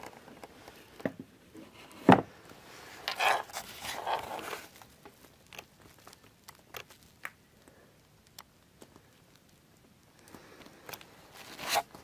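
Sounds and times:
rustling and scraping of handling: 0.0s - 7.2s, 10.2s - 12.0s.

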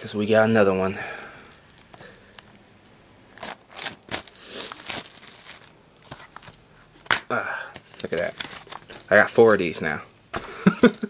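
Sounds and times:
plastic wrap crinkling and tearing: 1.2s - 9.6s.

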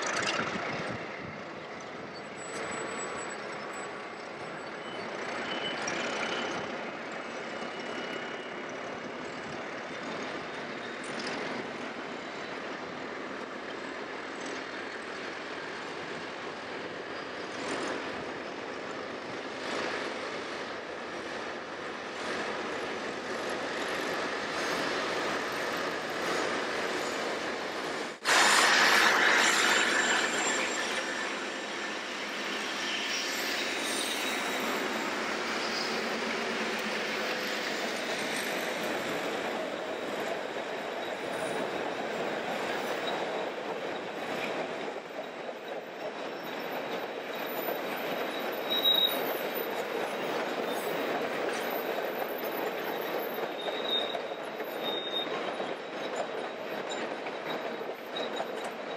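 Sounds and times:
train wheels rumbling and clattering: 0.0s - 58.9s
short high squeal: 28.2s - 40.0s, 46.4s - 49.8s, 50.6s - 58.9s.

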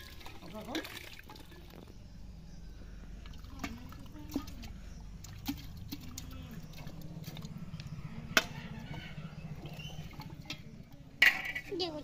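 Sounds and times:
mash bubbling and trickling: 0.0s - 12.0s
low steady rumble: 1.4s - 12.0s.

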